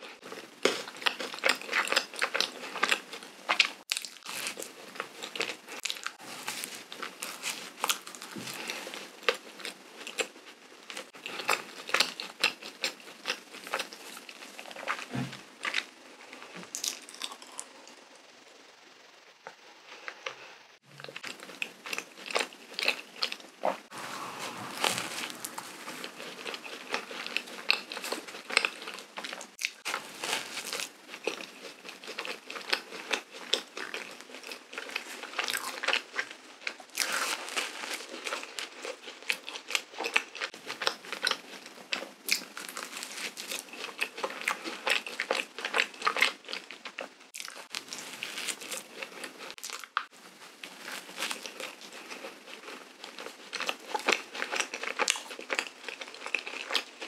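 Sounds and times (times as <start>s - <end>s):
chewing with sticky mouth clicks: 51.2s - 57.0s.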